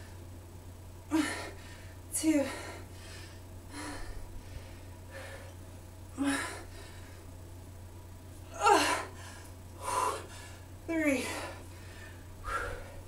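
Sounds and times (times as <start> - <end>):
steady low hum: 0.0 - 13.0
woman breathing hard: 1.1 - 5.6, 6.2 - 7.3, 8.6 - 13.0.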